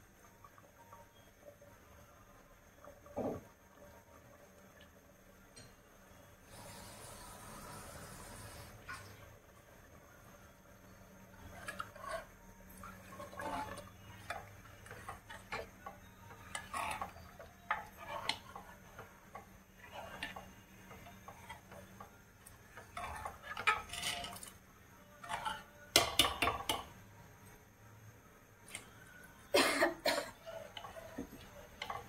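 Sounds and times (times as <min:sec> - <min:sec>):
utensils clattering on pots: 0:13.1 - 0:21.9, 0:22.7 - 0:24.6, 0:25.2 - 0:26.9.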